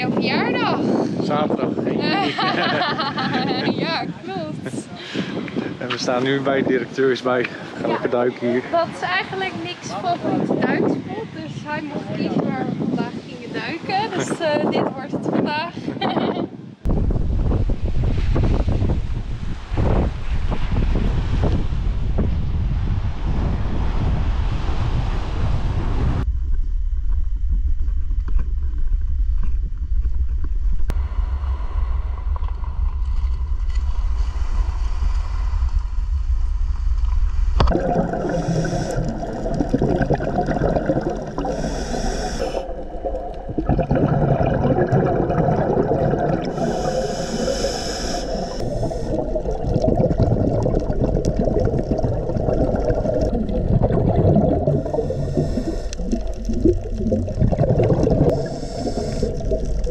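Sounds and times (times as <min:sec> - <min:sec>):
wind buffeting microphone: 0:00.0 - 0:59.9
diver breathing through regulator: 0:05.0 - 0:05.8, 0:33.8 - 0:36.1, 0:37.7 - 0:59.9
underwater bubbling: 0:36.8 - 0:59.9.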